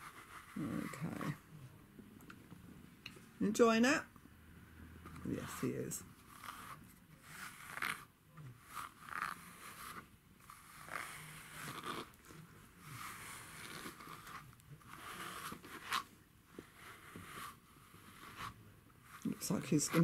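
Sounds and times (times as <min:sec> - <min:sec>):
grooming brush raking cat fur: 0:00.0 - 0:01.4, 0:05.2 - 0:20.0.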